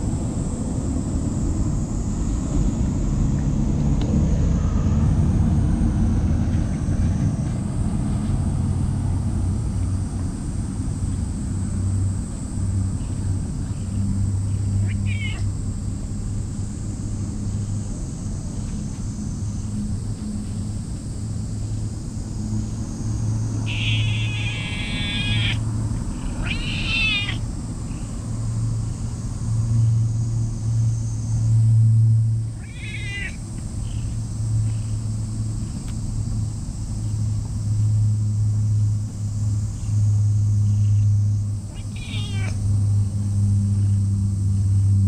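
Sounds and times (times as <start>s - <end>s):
steady low rumble: 0.0s - 45.0s
cat meowing: 14.8s - 15.5s, 23.7s - 25.6s, 26.2s - 27.4s, 32.6s - 33.4s, 41.7s - 42.6s.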